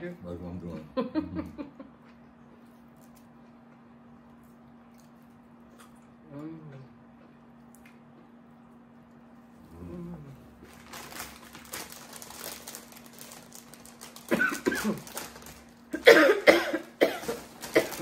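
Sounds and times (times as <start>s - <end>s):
plastic bag crinkling: 10.5s - 16.0s, 16.8s - 18.0s
woman coughing: 14.3s - 15.1s, 15.9s - 18.0s.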